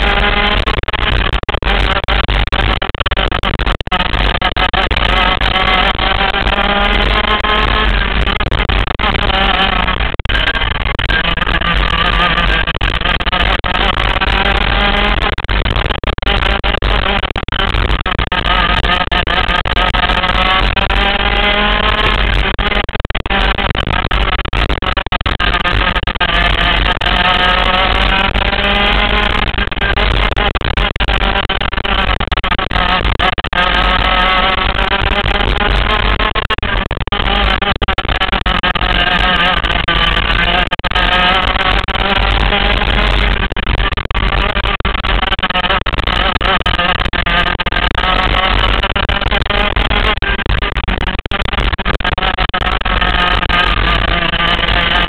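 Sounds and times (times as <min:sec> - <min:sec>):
kart engine revving: 0:00.0 - 0:00.6, 0:04.0 - 0:15.2, 0:16.2 - 0:17.3, 0:18.2 - 0:24.2, 0:25.5 - 0:30.1, 0:31.0 - 0:36.3, 0:37.3 - 0:43.4, 0:45.5 - 0:48.5, 0:53.0 - 0:55.0.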